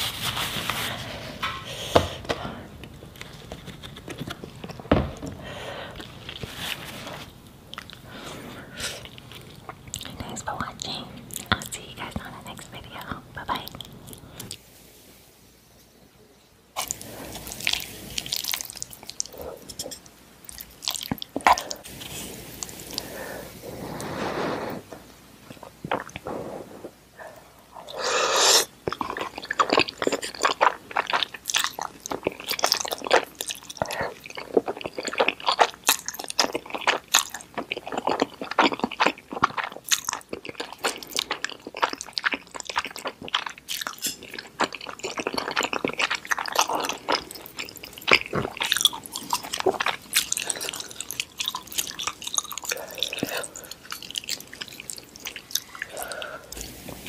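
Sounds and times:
wet chewing with mouth smacks: 20.4s - 21.9s, 28.8s - 56.8s
slurping noodles: 21.6s - 25.0s, 27.7s - 28.7s.

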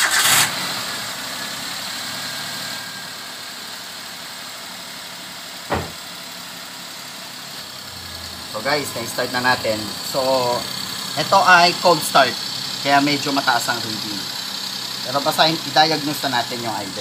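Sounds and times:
car engine idling: 0.0s - 17.0s
sharp knock: 5.7s - 6.0s.

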